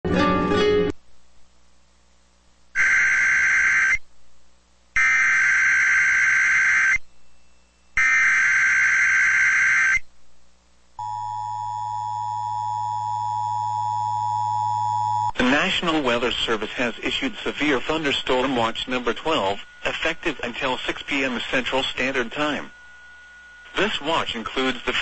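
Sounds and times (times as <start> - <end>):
screechy digital data bursts: 2.8 - 4.0, 5.0 - 7.0, 17.1 - 22.9
steady attention tone: 5.0 - 10.1, 11.0 - 25.0.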